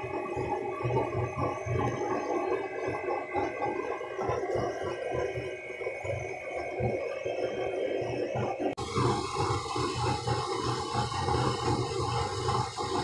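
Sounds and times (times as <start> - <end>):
oil burner flame rushing: 8.8 - 13.0.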